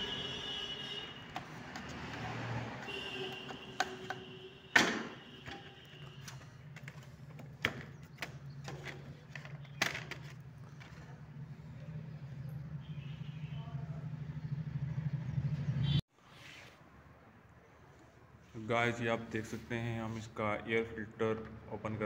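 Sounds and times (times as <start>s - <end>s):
plastic panels clicking and knocking: 2.8s - 11.0s.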